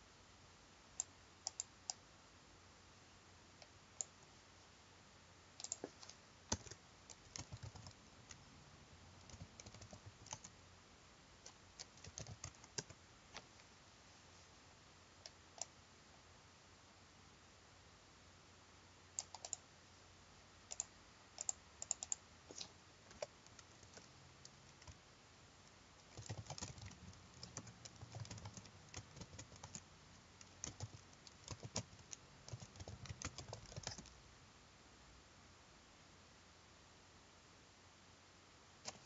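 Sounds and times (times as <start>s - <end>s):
typing on computer keyboard: 5.6s - 8.4s, 9.2s - 10.5s, 11.4s - 13.0s, 19.2s - 19.6s, 20.7s - 22.2s, 23.1s - 25.0s, 26.0s - 34.2s.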